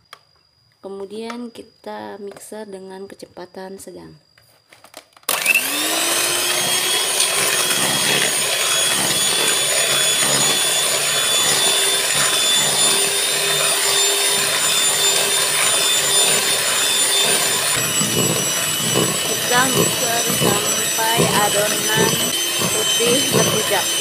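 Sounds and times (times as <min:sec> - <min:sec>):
electric hand mixer whisking: 0:05.3 - 0:24.0.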